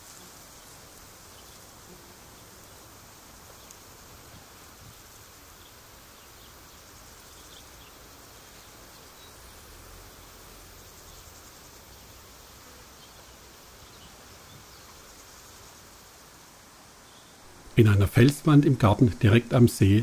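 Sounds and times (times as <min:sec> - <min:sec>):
steady outdoor hiss: 0:00.0 - 0:20.0.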